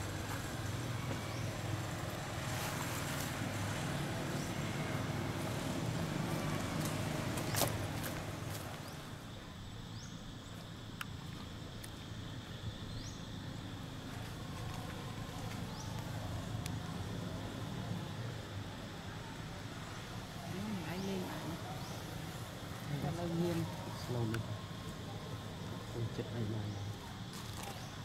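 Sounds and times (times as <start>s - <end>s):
motorbike engine humming: 0.0s - 9.5s
outdoor ambience: 0.0s - 28.0s.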